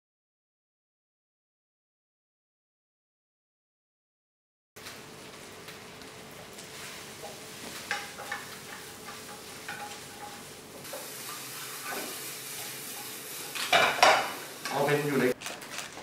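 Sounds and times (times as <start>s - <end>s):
food sizzling in a wok: 4.8s - 15.4s
spatula scraping and clacking on pan: 6.6s - 14.8s.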